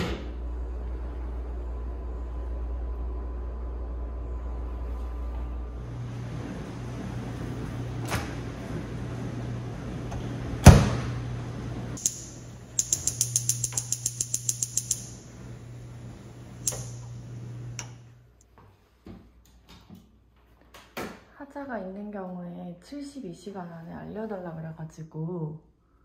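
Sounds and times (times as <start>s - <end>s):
microwave humming: 0.0s - 18.4s
loud clunk: 10.6s - 11.2s
gas igniter clicking: 12.0s - 15.3s, 16.6s - 18.0s.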